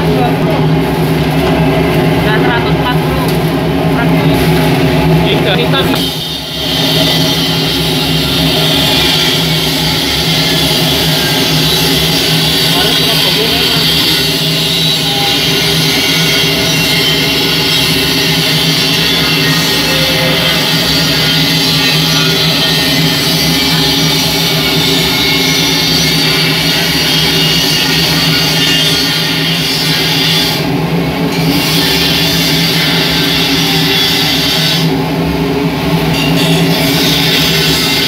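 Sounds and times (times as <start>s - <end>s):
burner flame and blower roar: 0.0s - 38.0s
constant low hum: 0.0s - 38.0s.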